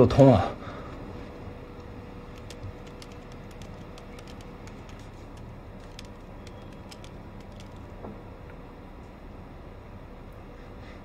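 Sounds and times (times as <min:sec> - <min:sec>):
low room hum: 0:00.0 - 0:11.0
keyboard key clicks: 0:02.3 - 0:08.0.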